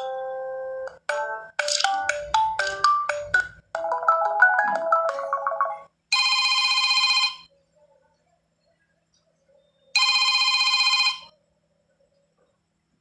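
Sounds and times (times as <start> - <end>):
phone ringtone melodies: 0.0 - 7.5.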